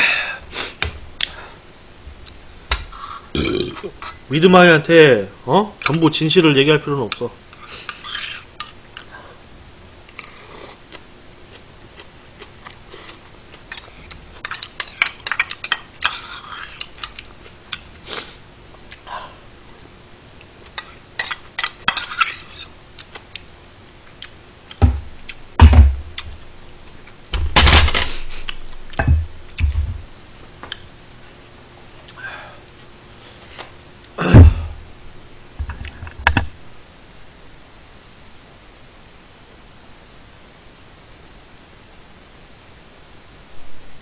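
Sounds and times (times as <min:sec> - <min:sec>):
heavy thumps: 0:24.8 - 0:26.4, 0:27.3 - 0:28.1, 0:28.9 - 0:30.1, 0:34.2 - 0:34.8.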